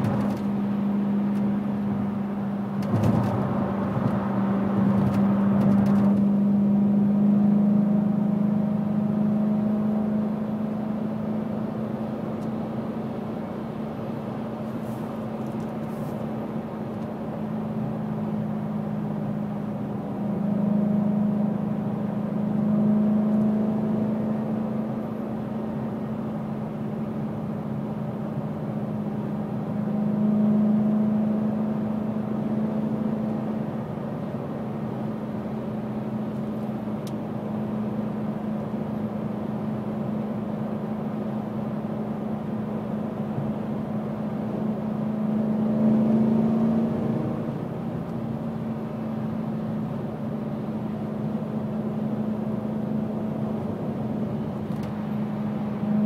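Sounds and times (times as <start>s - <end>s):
tyre and road noise: 0.0s - 7.1s
engine exhaust drone: 0.0s - 56.0s.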